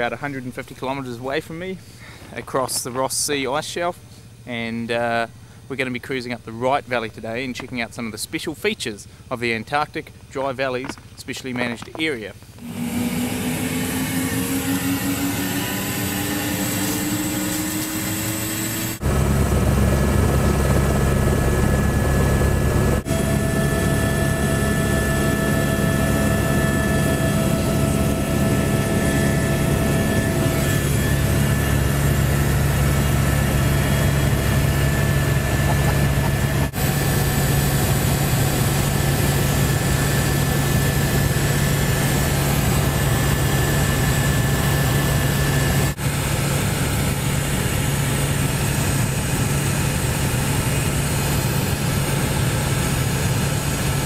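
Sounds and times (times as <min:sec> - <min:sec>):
helicopter rotor and engine drone: 0:00.0 - 0:54.0
helicopter engine whine rising: 0:12.6 - 0:54.0.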